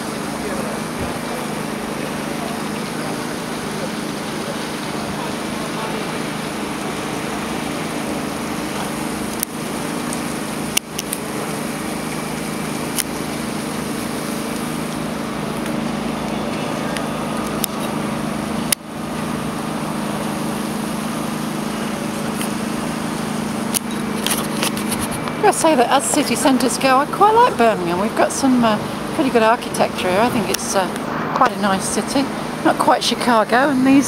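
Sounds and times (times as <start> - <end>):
low hum of traffic and machinery: 0.0 - 34.0.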